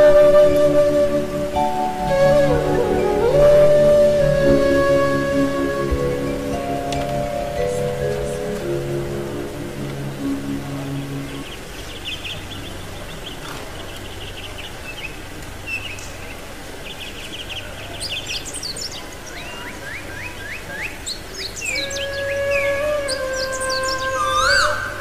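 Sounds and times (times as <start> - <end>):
sustained musical tones: 0.0 - 12.0
birds chirping: 0.0 - 25.0
rising whistled bird calls: 17.3 - 25.0.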